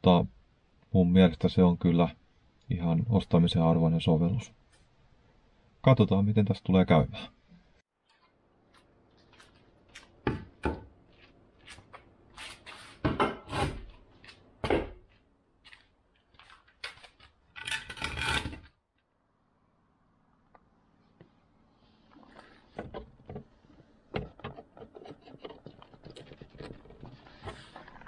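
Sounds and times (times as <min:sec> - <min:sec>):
scraping rub: 0:11.6 - 0:14.4, 0:23.6 - 0:28.0.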